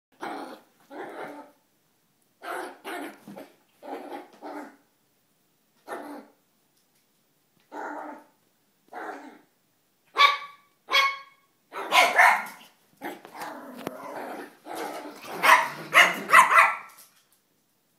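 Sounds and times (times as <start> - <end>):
dogs barking: 10.2 - 12.6, 15.4 - 17.0.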